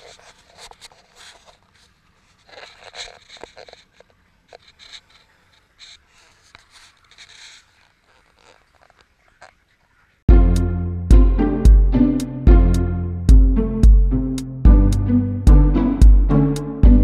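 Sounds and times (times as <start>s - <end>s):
scraping and rustling: 0.0s - 10.2s.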